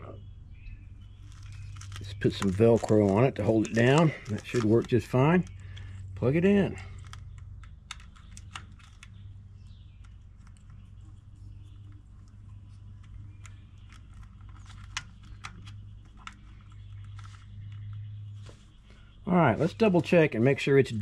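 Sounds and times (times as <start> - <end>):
low steady hum: 0.0 - 21.0
wires and connector clicking: 1.2 - 18.1.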